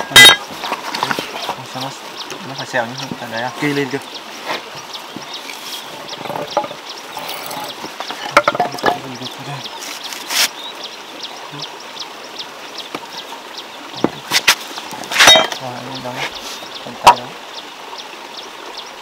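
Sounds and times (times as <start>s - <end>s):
outdoor hiss: 0.0s - 19.0s
wood knocking and scraping: 0.2s - 1.6s, 2.3s - 9.3s, 14.0s - 15.6s.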